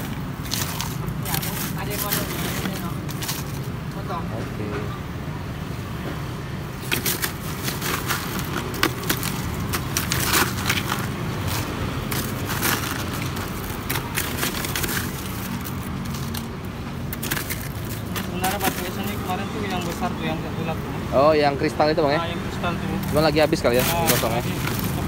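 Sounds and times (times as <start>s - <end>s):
ice crunching and clattering: 0.0s - 4.1s, 6.7s - 20.8s, 22.1s - 25.0s.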